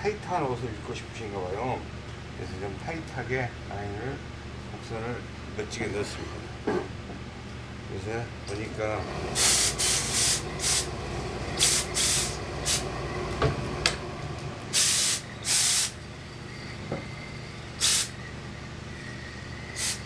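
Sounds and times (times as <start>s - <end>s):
steam iron hissing: 9.4s - 10.9s, 11.6s - 12.8s, 14.7s - 16.0s, 17.8s - 18.2s, 19.7s - 20.0s.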